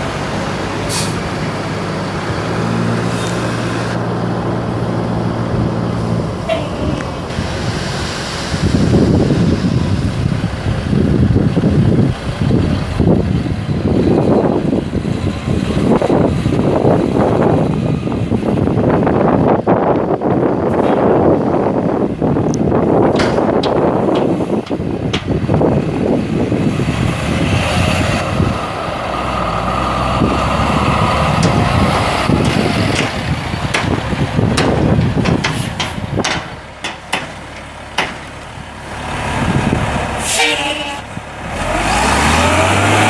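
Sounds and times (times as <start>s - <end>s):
wind buffeting microphone: 0.0s - 40.2s
diesel truck engine running: 0.0s - 43.0s.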